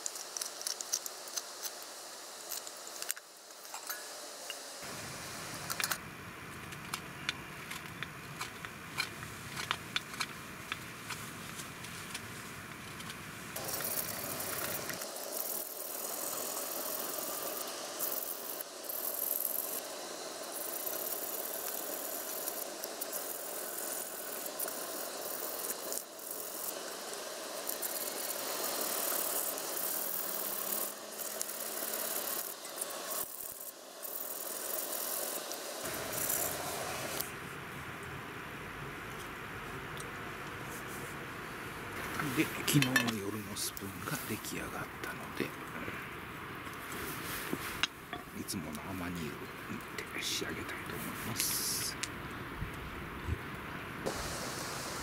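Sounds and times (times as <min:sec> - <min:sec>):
knife carving and scraping wood: 0:00.0 - 0:03.9, 0:07.4 - 0:15.1, 0:42.1 - 0:43.3.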